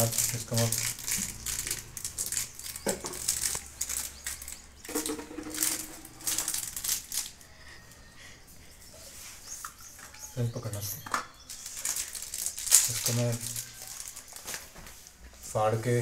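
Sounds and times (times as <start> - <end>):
plastic wrapping crinkling: 0.0 - 7.5, 9.8 - 15.3.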